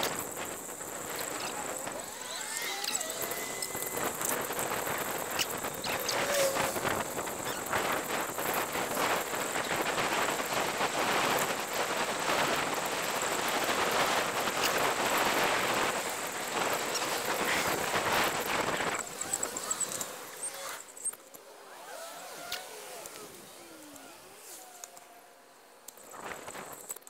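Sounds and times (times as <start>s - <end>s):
street sounds: 0.0s - 10.9s
wind and road noise: 0.0s - 27.0s.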